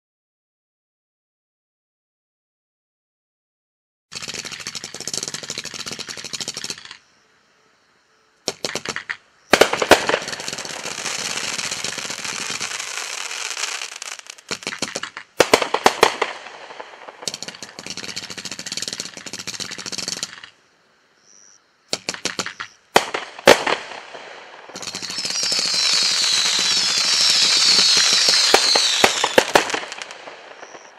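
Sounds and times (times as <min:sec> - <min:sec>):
fireworks pops and bangs: 0:04.2 - 0:07.0, 0:08.5 - 0:20.5, 0:21.9 - 0:30.9
fireworks crackling hiss: 0:08.5 - 0:20.7, 0:22.0 - 0:30.9.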